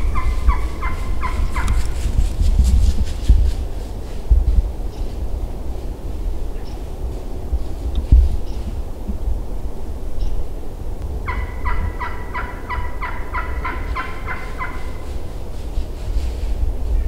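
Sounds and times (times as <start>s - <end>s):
wild turkey calling: 0.0s - 2.0s, 11.2s - 15.4s.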